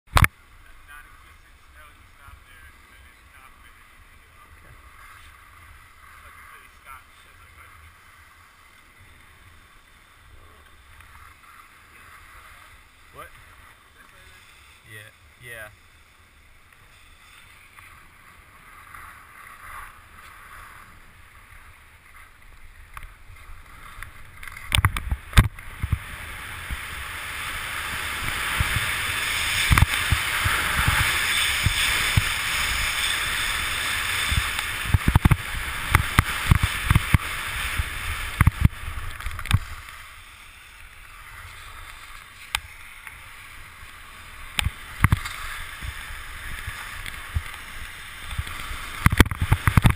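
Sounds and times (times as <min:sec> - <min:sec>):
skis hissing over snow: 0:00.7 - 0:49.9
skis knocking over bumps: 0:28.0 - 0:40.0, 0:44.5 - 0:49.9.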